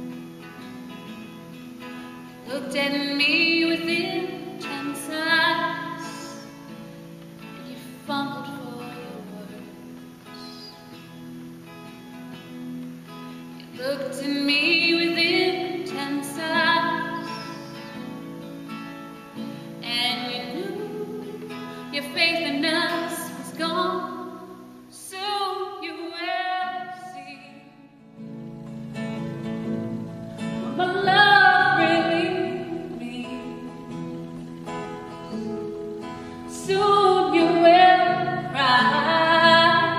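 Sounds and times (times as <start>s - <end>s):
guitar accompaniment: 0.0s - 39.9s
person singing: 30.7s - 33.9s.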